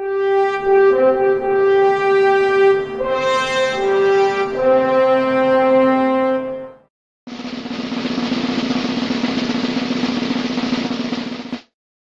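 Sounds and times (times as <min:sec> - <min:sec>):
snare drum roll: 0:07.3 - 0:11.8.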